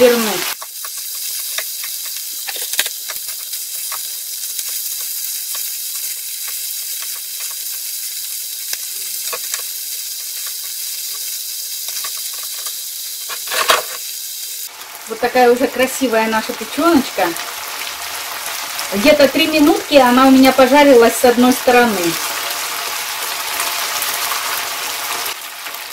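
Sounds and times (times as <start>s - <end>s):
liver sizzling in a frying pan: 0.0s - 25.9s
spatula and fork clicking and scraping: 0.5s - 8.0s, 8.6s - 14.1s.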